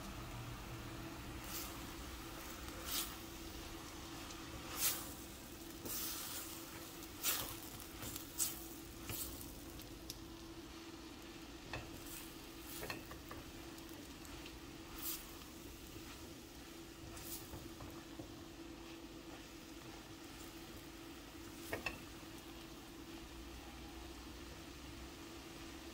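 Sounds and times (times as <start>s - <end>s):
vegetables sizzling in oil: 0.0s - 25.9s
spatula swishing and scraping: 1.4s - 3.4s, 4.2s - 9.6s, 11.8s - 18.0s.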